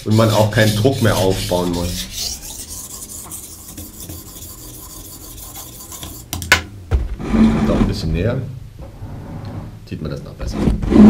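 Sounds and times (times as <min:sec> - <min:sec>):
knife rasping on whetstone: 0:00.0 - 0:06.5
low thump: 0:06.9 - 0:07.3.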